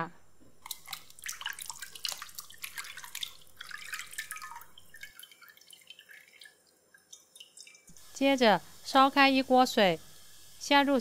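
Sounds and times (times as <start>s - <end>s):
water splashing in a bowl: 0.6s - 7.9s.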